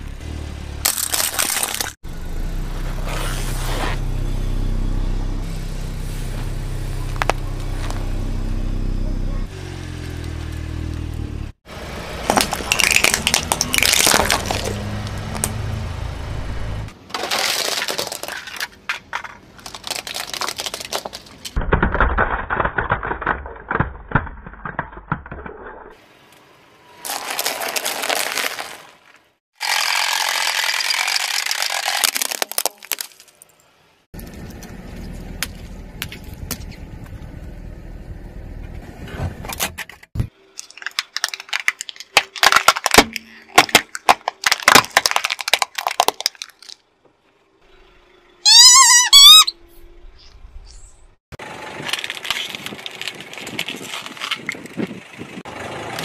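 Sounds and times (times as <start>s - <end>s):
plastic toy cracking: 12.4s - 14.7s, 17.2s - 25.6s, 40.6s - 46.9s
squeaky rubber toy squealing: 48.4s - 49.6s.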